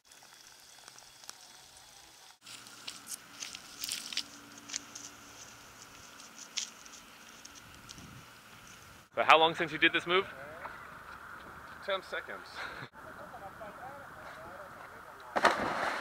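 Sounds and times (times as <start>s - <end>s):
footsteps crunching on stony scrub: 2.4s - 9.0s, 10.6s - 11.9s.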